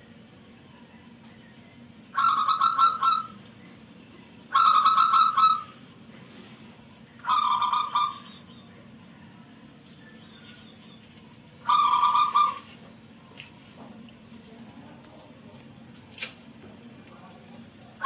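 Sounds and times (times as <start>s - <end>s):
dove cooing: 2.1s - 3.5s, 4.5s - 5.8s, 7.2s - 8.6s, 10.0s - 13.0s.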